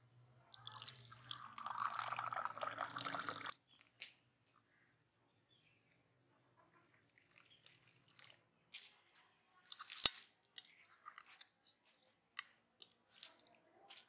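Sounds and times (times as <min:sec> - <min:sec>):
tea trickling into cup: 0:00.5 - 0:04.0, 0:06.7 - 0:08.4.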